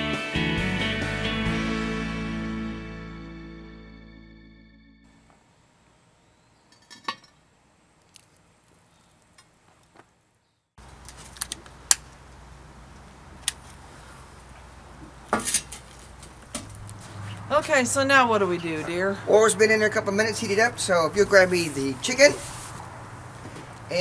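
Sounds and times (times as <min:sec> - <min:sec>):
acoustic guitar music: 0:00.0 - 0:04.6
outdoor background noise: 0:05.0 - 0:24.0.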